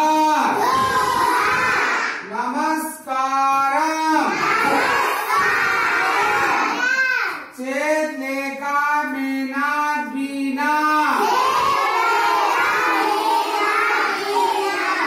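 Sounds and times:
children chanting in unison: 0.1s - 2.3s, 4.1s - 7.6s, 10.9s - 15.0s.

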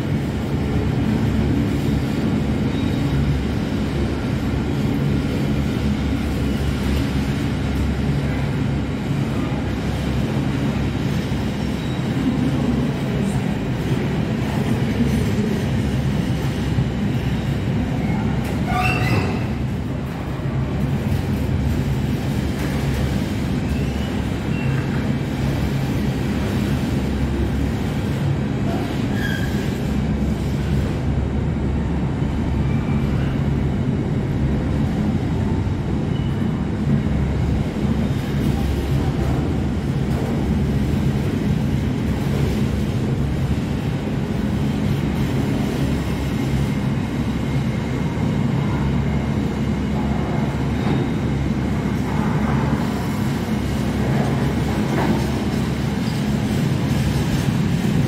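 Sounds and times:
train wheels rumbling on rail: 0.0s - 58.0s
wheel squeal: 18.6s - 19.6s, 29.1s - 29.8s.

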